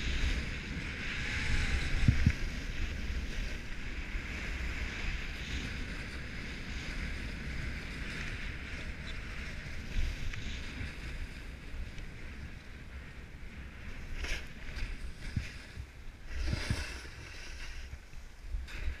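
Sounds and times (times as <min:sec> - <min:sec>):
wind rumbling on microphone: 0:00.0 - 0:19.0
skis hissing over packed snow: 0:13.9 - 0:19.0
ski edges scraping: 0:16.3 - 0:18.1.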